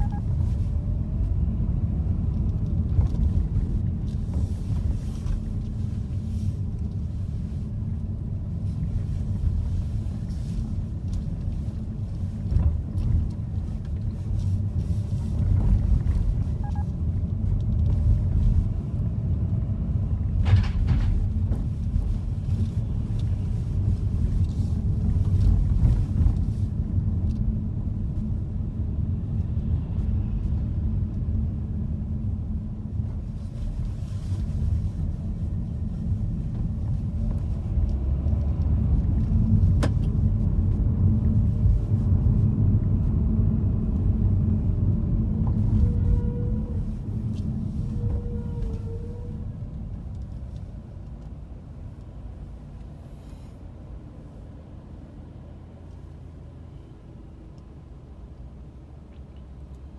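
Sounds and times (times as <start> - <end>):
engine and tyre rumble: 0.0 - 59.9.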